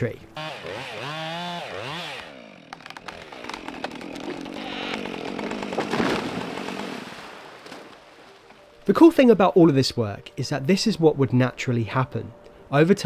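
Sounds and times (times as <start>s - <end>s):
sharp wood cracks: 1.7s - 8.6s
falling tree rushing noise: 3.2s - 8.6s.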